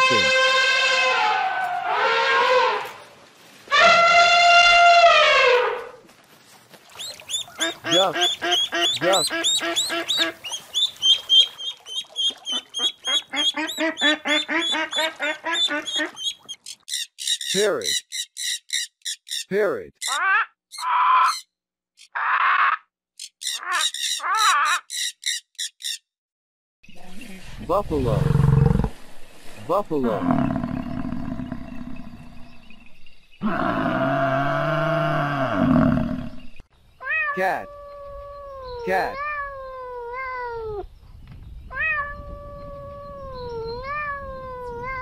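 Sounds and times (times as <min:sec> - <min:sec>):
macaws squawking: 0:07.0 - 0:26.0
cat meowing: 0:37.0 - 0:40.8, 0:41.7 - 0:45.0.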